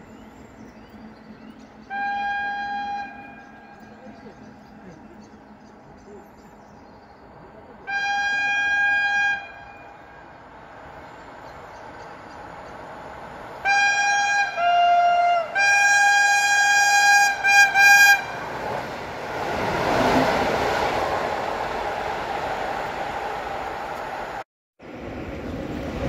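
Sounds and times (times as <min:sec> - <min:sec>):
train passing rush and rumble: 0:00.0 - 0:26.0
two-tone train horn: 0:01.8 - 0:03.9, 0:07.8 - 0:10.2, 0:13.6 - 0:18.4.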